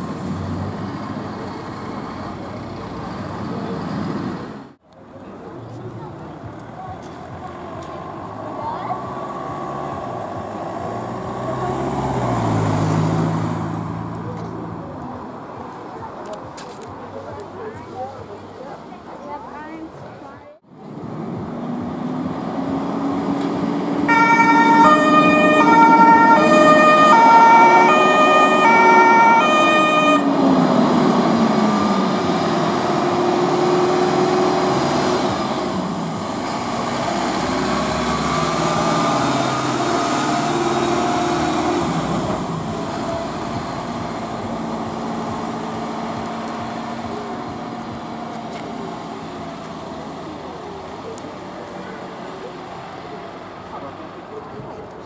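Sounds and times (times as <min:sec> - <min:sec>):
truck engine running: 0:20.7 - 0:55.0
fire engine two-tone siren: 0:24.1 - 0:30.6.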